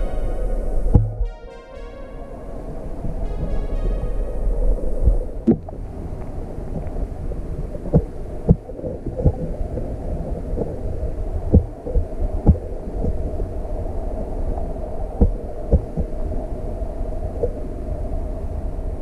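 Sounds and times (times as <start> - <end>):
muffled underwater stream rumble: 0.0 - 19.0
dull knocks underwater: 11.5 - 13.2.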